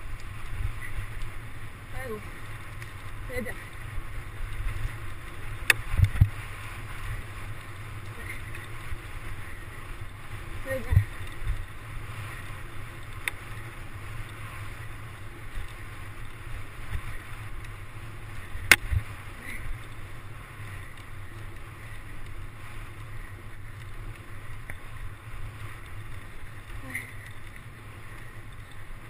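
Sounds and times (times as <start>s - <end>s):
bike rumbling and rattling: 0.0s - 29.0s
wind on microphone: 3.2s - 19.8s.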